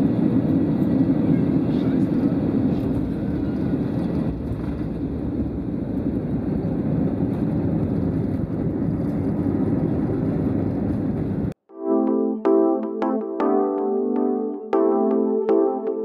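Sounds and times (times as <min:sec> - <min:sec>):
jet engines and wheels rumbling: 0:00.0 - 0:11.6.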